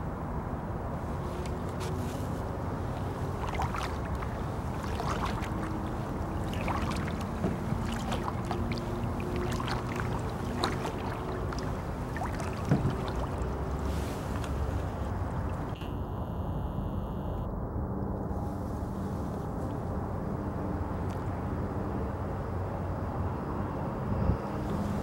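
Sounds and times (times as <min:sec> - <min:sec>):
paddle splashes and drips: 0:01.0 - 0:15.8, 0:21.0 - 0:21.4.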